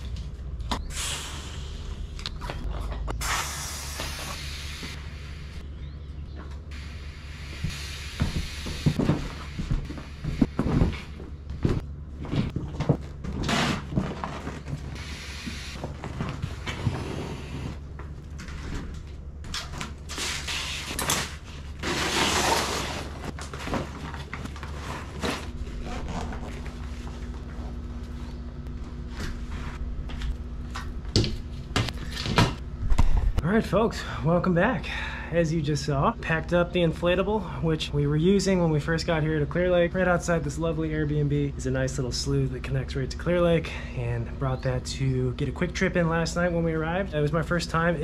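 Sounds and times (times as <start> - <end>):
steady low hum: 0.0 - 48.0
rustling and hissing: 3.0 - 5.6, 6.8 - 12.5, 13.8 - 17.8, 20.1 - 28.4.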